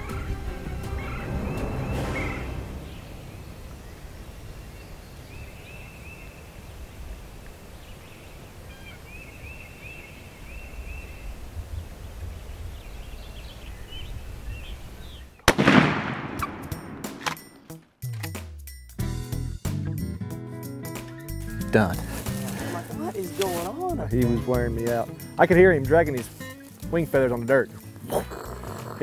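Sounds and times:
loud shotgun blast: 15.5s - 17.5s.

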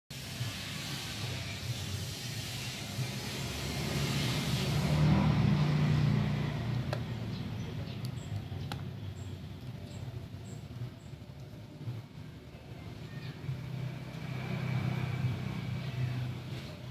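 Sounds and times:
low vehicle rumble: 0.2s - 16.9s.

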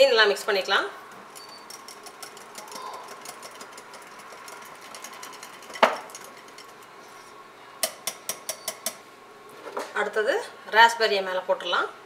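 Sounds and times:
whisk ticking against mug: 1.3s - 6.8s, 7.8s - 9.0s
whisk knocking mug: 1.4s - 6.8s.

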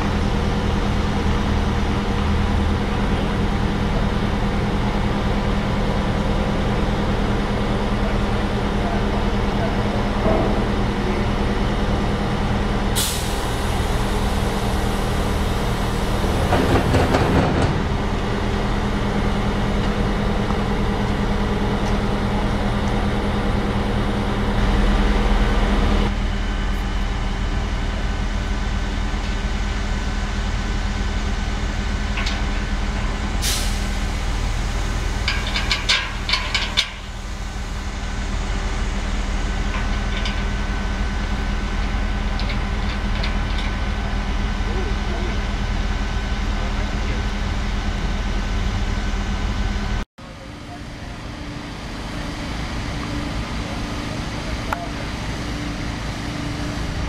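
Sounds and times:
crane engine running: 0.0s - 57.0s
short sharp hiss: 13.0s - 13.7s, 33.4s - 33.9s.

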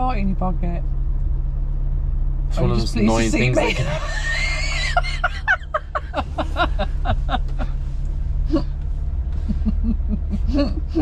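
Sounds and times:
low hum inside car: 0.0s - 11.0s
soft low laughter: 3.6s - 7.8s, 9.4s - 11.0s
woman laughing hard: 3.6s - 7.8s, 9.5s - 11.0s.

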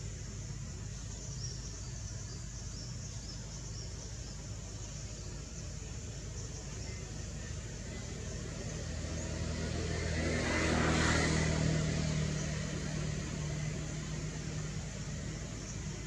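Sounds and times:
motor vehicle passing by: 4.8s - 16.0s.

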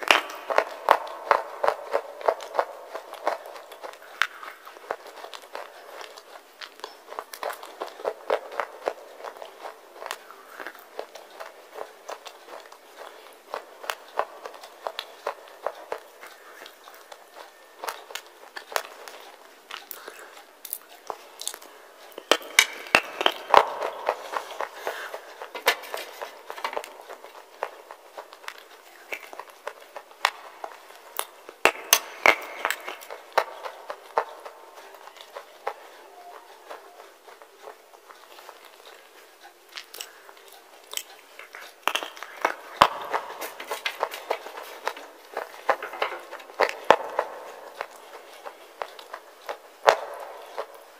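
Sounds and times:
chewing crunches: 15.8s - 22.3s, 37.2s - 42.4s.

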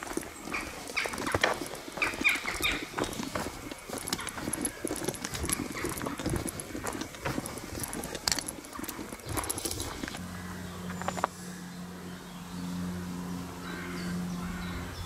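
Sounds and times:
footsteps on twigs and leaves: 0.0s - 11.4s.

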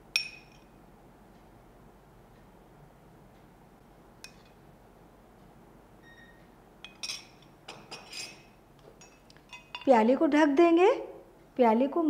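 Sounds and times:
metal spoon clinking on glass: 0.2s - 0.7s, 6.8s - 9.9s.

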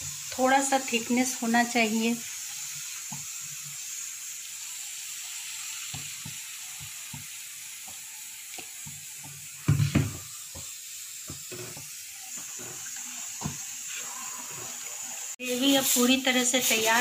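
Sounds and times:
paste sizzling in hot oil: 0.0s - 17.0s
loud knocks on pan: 9.6s - 10.7s
wooden spatula scraping pan: 11.4s - 17.0s.

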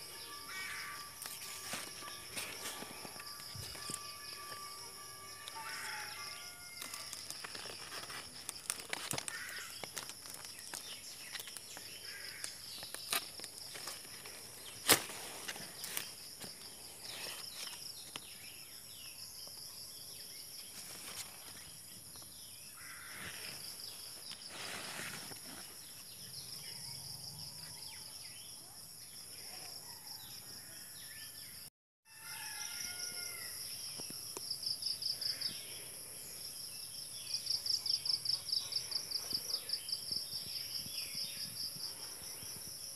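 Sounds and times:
high-pitched insect chorus: 0.0s - 42.9s.

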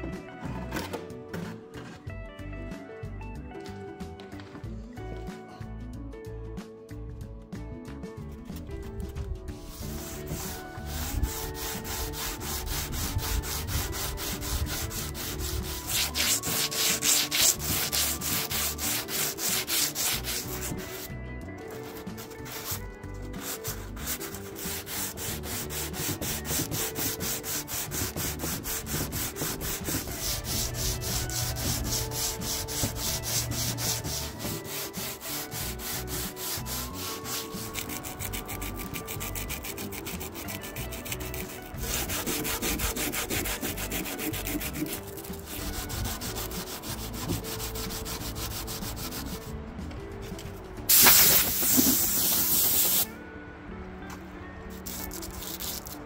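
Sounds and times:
sandpaper rubbing on wood: 9.6s - 21.1s, 21.8s - 49.5s, 50.9s - 53.1s, 54.8s - 56.0s.

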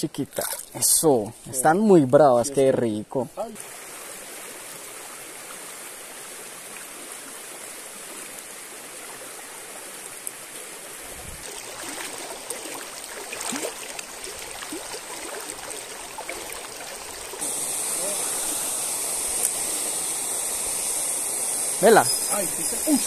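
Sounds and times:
river water running: 0.0s - 23.0s
water gurgling and splashing: 11.0s - 23.0s.

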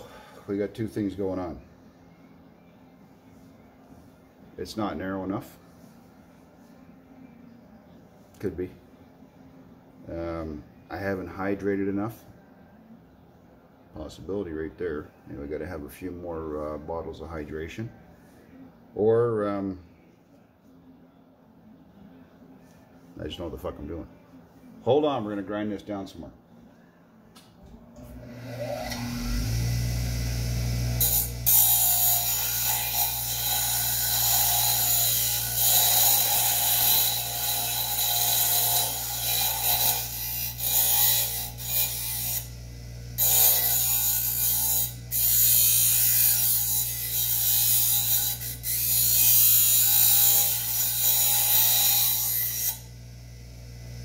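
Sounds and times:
electric grinder motor: 28.1s - 54.0s
grinding steel blade: 28.3s - 53.4s.

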